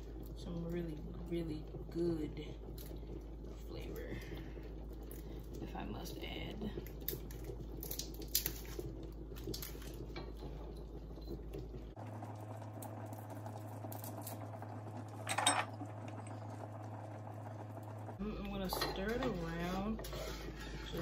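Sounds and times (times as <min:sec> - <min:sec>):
pot bubbling: 0:00.0 - 0:21.0
glass jar and utensil clinks: 0:15.2 - 0:15.7.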